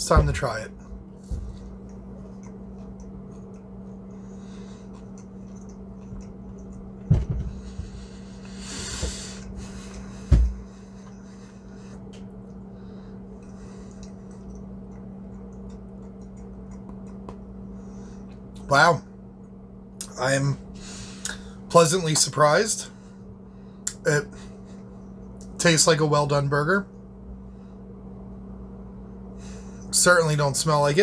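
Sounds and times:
steady low hum: 0:00.0 - 0:31.0
man chewing: 0:00.8 - 0:10.2, 0:10.8 - 0:18.6
breathing: 0:04.1 - 0:05.0, 0:07.4 - 0:12.1, 0:12.7 - 0:14.3, 0:17.7 - 0:18.4, 0:20.8 - 0:21.6, 0:22.9 - 0:25.0, 0:27.4 - 0:28.0, 0:29.3 - 0:29.9
dull thumps: 0:07.0 - 0:08.0, 0:10.2 - 0:10.7.

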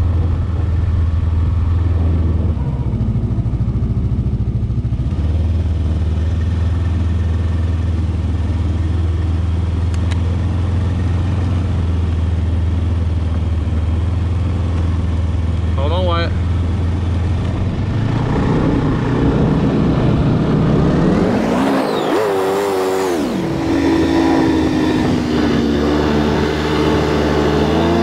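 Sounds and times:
snowmobile engine running: 0:15.8 - 0:28.0.

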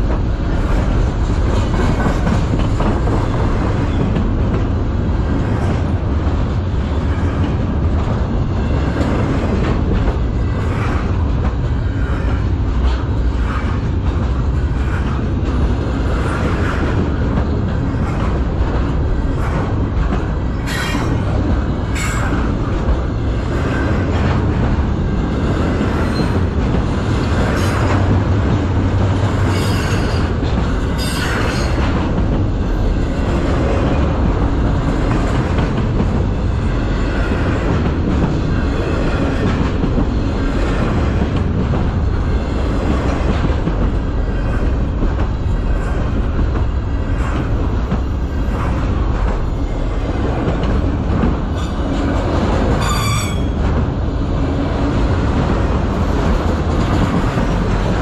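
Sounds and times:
train cars rumbling past: 0:00.0 - 0:58.0
high wheel squeals: 0:52.8 - 0:53.6.

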